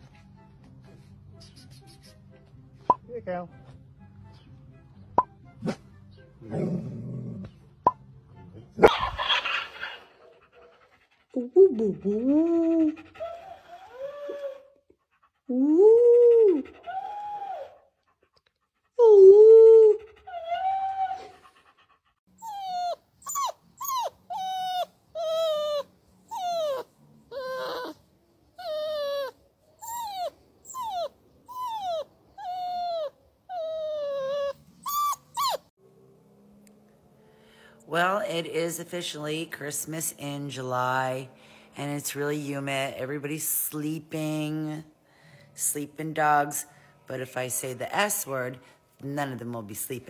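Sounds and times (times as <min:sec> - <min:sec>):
dogs howling: 0:12.8 - 0:14.8, 0:15.9 - 0:17.9, 0:19.5 - 0:21.6
puppy yipping: 0:22.4 - 0:28.0, 0:28.6 - 0:35.7.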